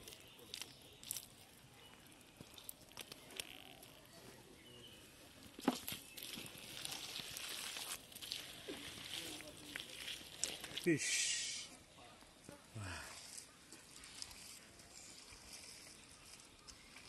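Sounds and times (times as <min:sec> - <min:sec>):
hands squelching in wet mud: 0:00.0 - 0:04.2, 0:05.8 - 0:11.0.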